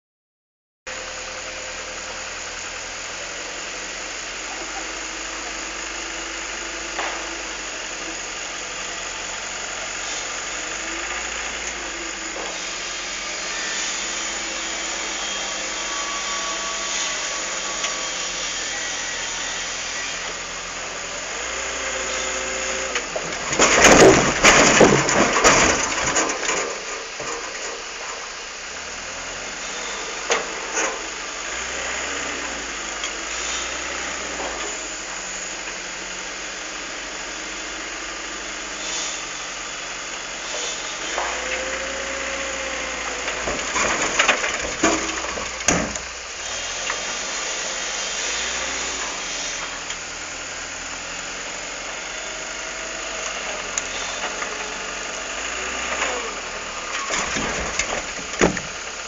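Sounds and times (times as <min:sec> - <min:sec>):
diesel loader engine running: 0:00.9 - 0:59.0
loud knocking and clattering: 0:23.2 - 0:27.3, 0:57.2 - 0:58.8.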